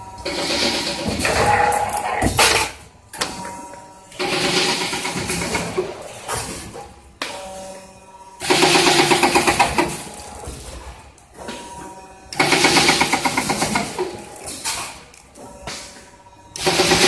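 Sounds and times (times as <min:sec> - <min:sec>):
machine humming: 0:00.0 - 0:06.3
machine rattling bursts: 0:00.2 - 0:02.8, 0:04.2 - 0:06.2, 0:08.4 - 0:10.2, 0:12.4 - 0:15.0, 0:16.6 - 0:17.0.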